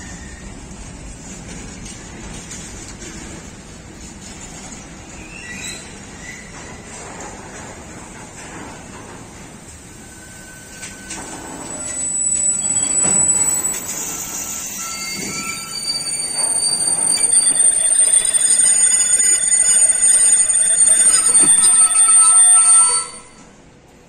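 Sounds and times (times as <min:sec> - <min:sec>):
freight train rolling on rails: 0:00.0 - 0:24.0
wheels squealing: 0:09.9 - 0:23.4.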